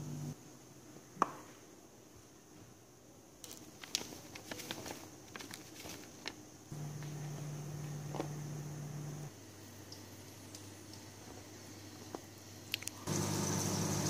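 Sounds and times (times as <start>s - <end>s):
low hum: 0.0s - 0.4s.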